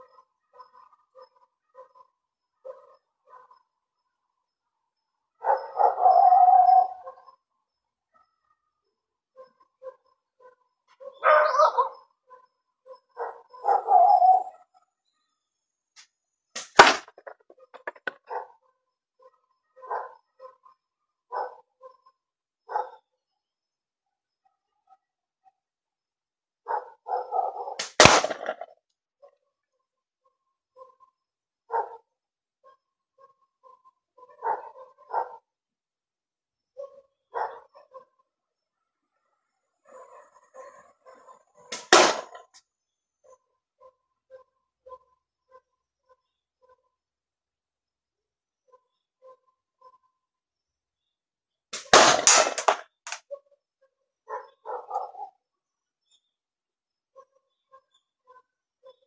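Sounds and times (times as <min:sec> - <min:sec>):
dog barking: 0:00.0 - 0:03.7, 0:05.4 - 0:07.4, 0:09.3 - 0:14.5, 0:17.2 - 0:23.1, 0:26.7 - 0:27.8, 0:30.8 - 0:31.1, 0:31.7 - 0:35.5, 0:36.8 - 0:38.3, 0:39.8 - 0:42.4, 0:43.2 - 0:45.7, 0:54.3 - 0:55.4
sharp crack: 0:16.6 - 0:18.2, 0:27.8 - 0:28.7, 0:41.7 - 0:42.4, 0:51.8 - 0:53.2.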